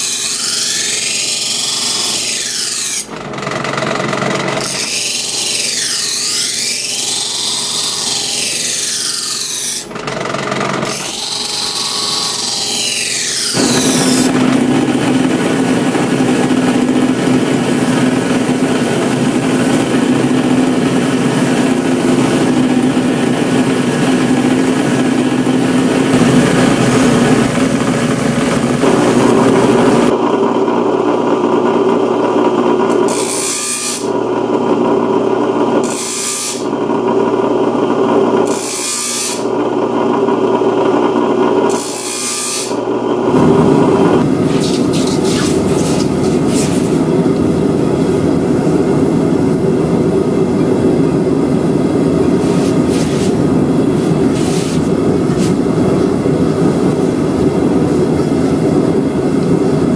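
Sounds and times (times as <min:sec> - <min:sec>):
knife blade grinding: 0:00.0 - 0:03.1, 0:04.6 - 0:09.9, 0:10.8 - 0:14.5, 0:32.9 - 0:34.1, 0:35.8 - 0:36.7, 0:38.5 - 0:39.5, 0:44.2 - 0:47.1, 0:52.4 - 0:53.4, 0:54.1 - 0:55.6
grinder motor humming: 0:00.0 - 0:59.9.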